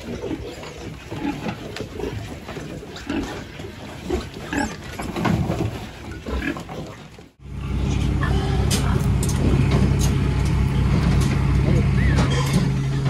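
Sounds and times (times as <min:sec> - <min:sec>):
pigs grunting and squealing: 0:00.0 - 0:10.0, 0:10.6 - 0:13.0
low engine hum: 0:07.4 - 0:13.0.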